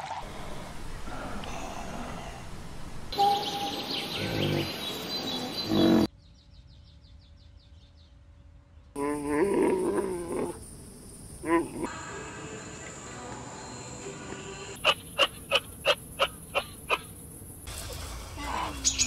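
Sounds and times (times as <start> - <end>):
birds chirping: 0.2 - 8.2, 9.0 - 17.7
low animal grunts: 4.2 - 4.8, 5.7 - 6.1, 9.0 - 10.6, 11.4 - 11.9.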